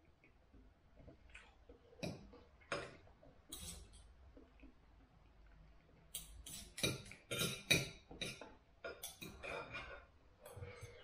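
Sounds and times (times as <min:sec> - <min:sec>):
knife and fork scraping on a plate: 0:03.5 - 0:04.0.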